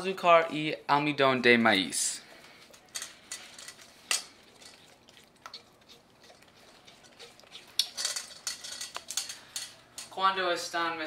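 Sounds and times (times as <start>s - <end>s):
spatula stirring in metal bowl: 2.2s - 10.2s.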